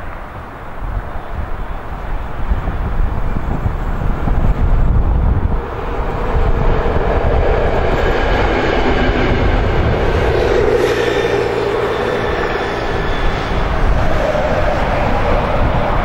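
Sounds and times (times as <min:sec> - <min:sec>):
wheels rumbling on track: 0:00.0 - 0:16.0.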